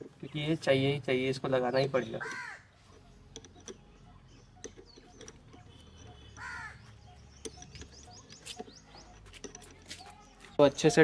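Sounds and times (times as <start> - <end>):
faint small birds chirping: 0.0 - 11.0
crow cawing: 2.2 - 2.7, 6.4 - 6.8.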